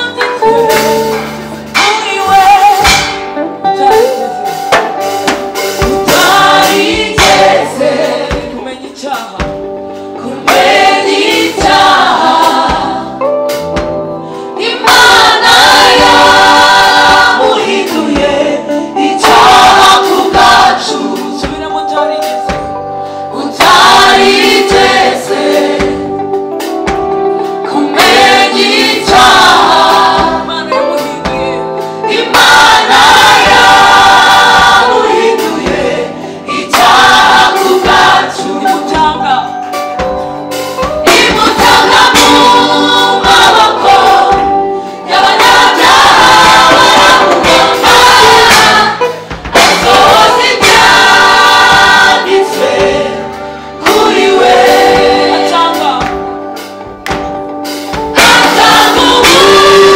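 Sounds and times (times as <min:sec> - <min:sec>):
band accompaniment: 0:00.0 - 0:59.9
gospel choir singing: 0:00.0 - 0:59.9
drumbeat: 0:00.1 - 0:09.8, 0:10.4 - 0:14.2, 0:14.8 - 0:22.9, 0:23.6 - 0:39.4, 0:40.0 - 0:59.9.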